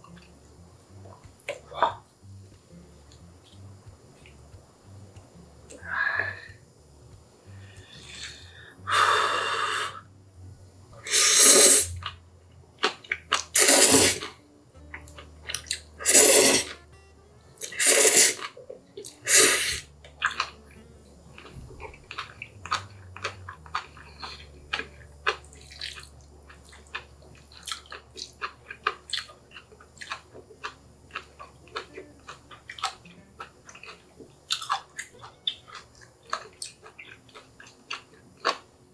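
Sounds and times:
loud noodle slurping: 11.0s - 12.2s, 13.4s - 14.4s, 15.6s - 16.8s, 17.6s - 18.5s, 19.2s - 20.5s
wet rapid chewing: 12.8s - 16.8s, 17.6s - 38.7s.

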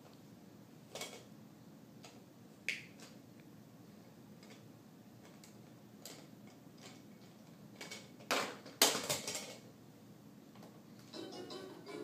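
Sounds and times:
plastic toys clattering: 0.9s - 1.3s, 4.4s - 9.7s.

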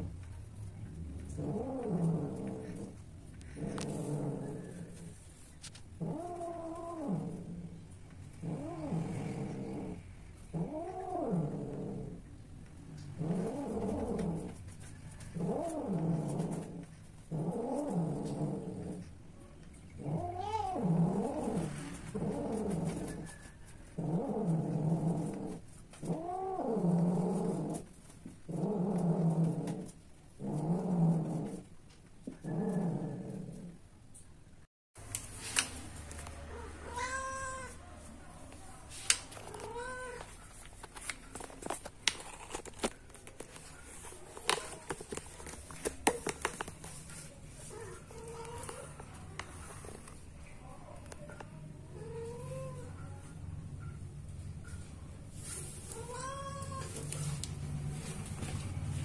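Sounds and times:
cat yowling: 36.5s - 37.8s.

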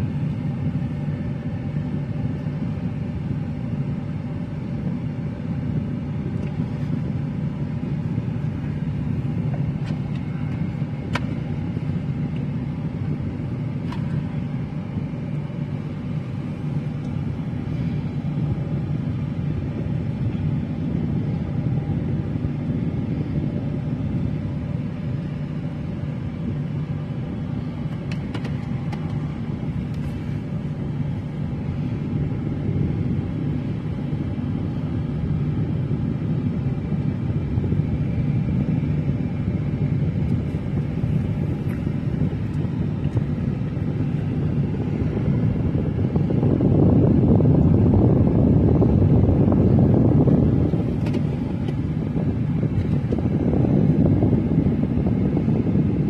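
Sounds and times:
car cabin rumble: 39.7s - 56.0s.

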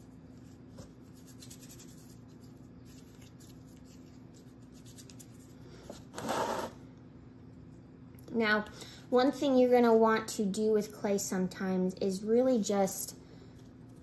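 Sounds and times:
hands rustling soft clay: 0.0s - 6.1s
hands rubbing clay: 0.0s - 6.7s.

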